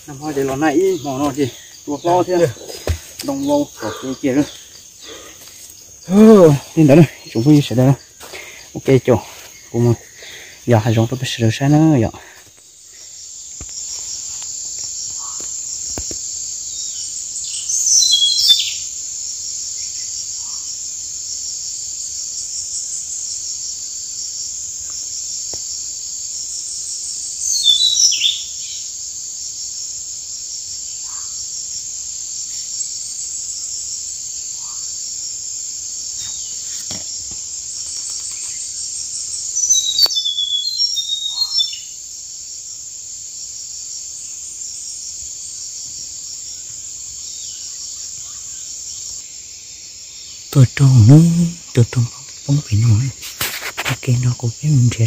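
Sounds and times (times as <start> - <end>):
high-pitched insect chorus: 0.0 - 55.0
bird chirping: 16.7 - 18.9, 27.4 - 28.9, 37.8 - 42.0.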